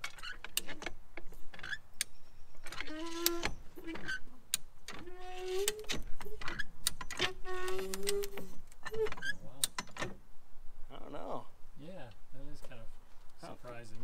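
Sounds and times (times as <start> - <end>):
bent metal creaking: 0.0 - 10.2.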